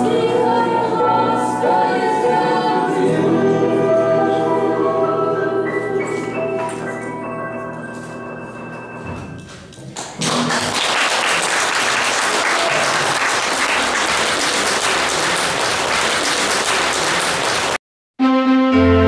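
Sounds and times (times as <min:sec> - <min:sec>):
slow music: 0:00.0 - 0:10.0, 0:18.2 - 0:19.0
audience applauding: 0:09.9 - 0:17.8.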